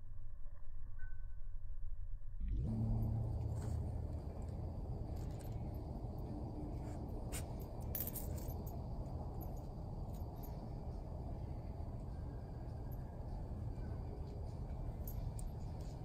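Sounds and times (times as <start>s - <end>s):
low outdoor rumble: 0.0s - 16.0s
dog collar tags jingling: 6.8s - 10.8s, 14.7s - 16.0s.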